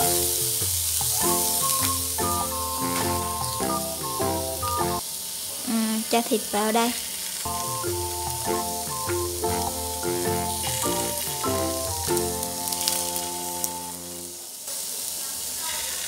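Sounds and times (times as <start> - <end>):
background music of held notes: 0.0 - 5.0, 7.5 - 14.5
oil sizzling in a pan: 0.0 - 16.0.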